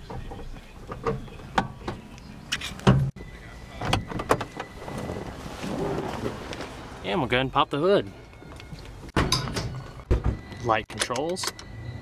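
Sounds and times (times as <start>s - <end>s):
gear shift lever clicks and clunks: 10.9s - 11.7s.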